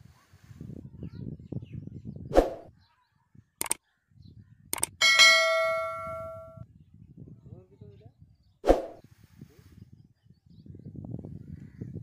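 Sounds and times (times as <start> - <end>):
low wind rumble on microphone: 0.0 - 12.0
sharp clicks: 3.6 - 3.8, 4.7 - 5.0
bright bell ding: 5.0 - 6.6.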